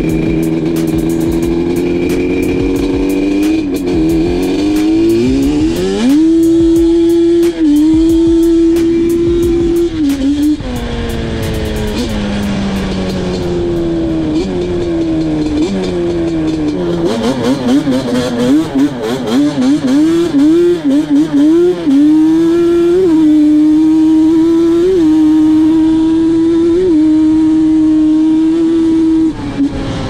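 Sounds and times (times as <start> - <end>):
quad two-stroke engine revving: 0.0 - 30.0.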